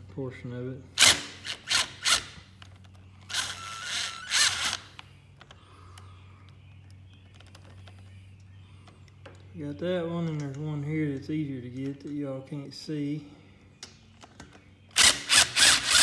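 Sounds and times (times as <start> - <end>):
rapid ratchet clicking: 15.0 - 16.0.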